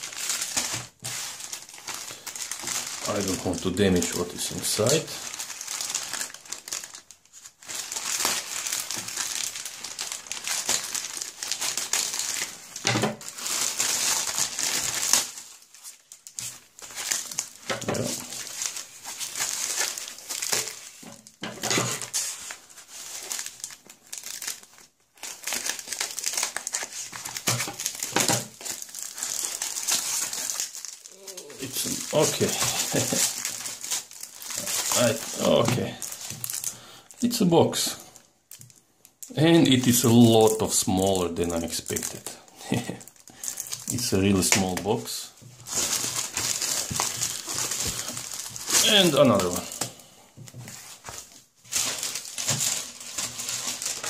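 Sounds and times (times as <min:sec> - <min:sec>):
plastic packaging crinkling: 0:00.0 - 0:54.0.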